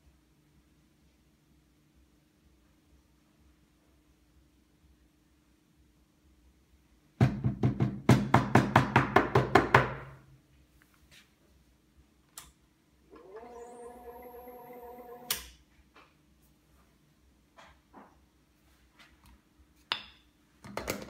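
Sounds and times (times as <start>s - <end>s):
espresso machine pump humming: 13.1s - 15.4s.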